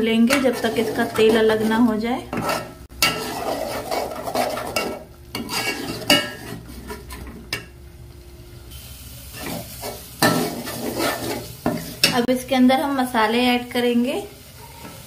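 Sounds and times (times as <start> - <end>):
paste sizzling in oil: 0.0 - 7.3, 8.7 - 12.4
metal spoon scraping pot: 0.1 - 7.4, 9.4 - 12.2.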